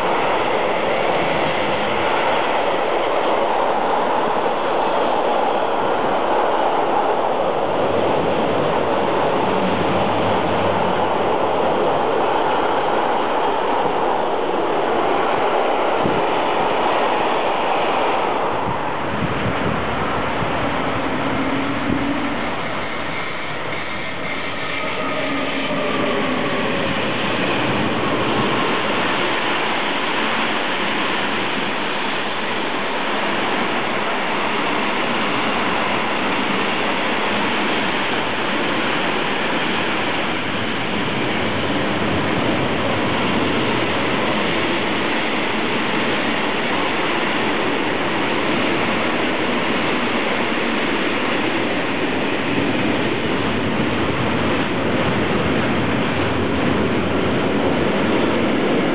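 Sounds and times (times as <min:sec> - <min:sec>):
electric locomotive whine: 0:00.0 - 0:58.9
train wheels rushing on rail: 0:00.0 - 0:58.9.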